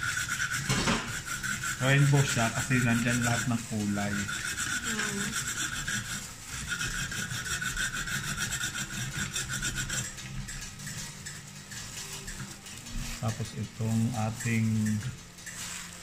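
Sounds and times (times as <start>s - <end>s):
food processor shredding carrot: 0.0s - 16.0s.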